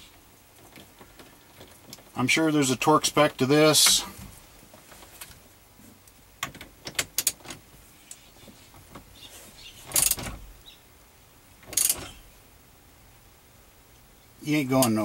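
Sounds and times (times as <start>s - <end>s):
socket wrench clicking: 11.7s - 12.2s.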